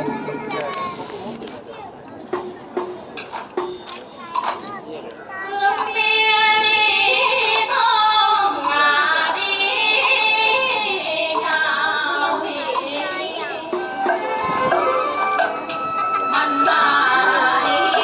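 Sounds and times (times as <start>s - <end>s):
sharp percussion clicks: 2.1s - 4.8s, 5.7s - 6.0s, 7.2s - 7.8s, 8.5s - 10.7s, 11.3s - 11.8s, 12.7s - 13.2s
instrumental accompaniment: 2.2s - 4.8s, 5.5s - 18.0s.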